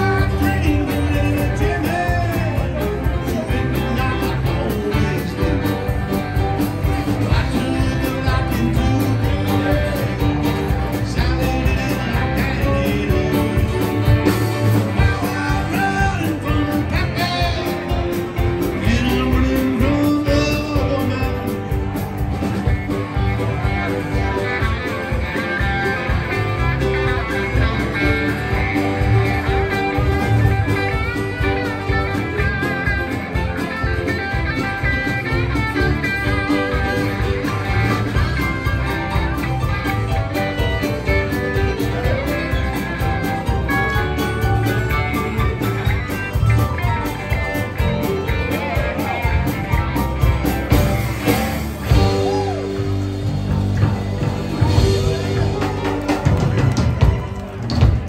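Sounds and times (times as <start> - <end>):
live country-rock band playing: 0.0 - 58.0.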